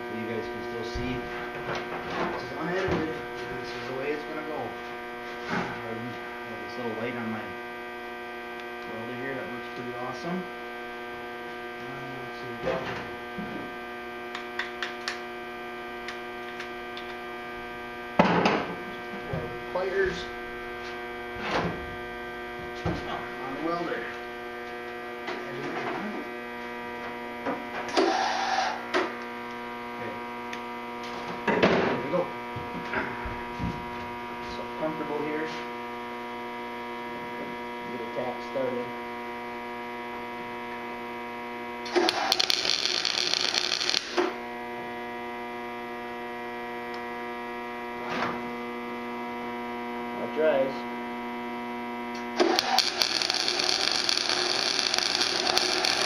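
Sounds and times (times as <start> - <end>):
welder electrical hum: 0.0 - 56.0
welding hiss and crackle: 41.9 - 44.4, 52.4 - 56.0.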